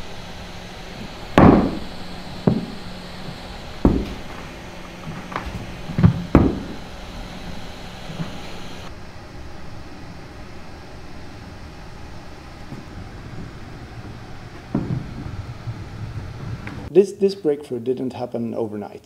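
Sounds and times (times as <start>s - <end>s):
steady low hum: 0.0s - 17.5s
robot feet knocking on wooden floor: 1.4s - 2.8s, 3.8s - 6.8s, 14.7s - 15.4s.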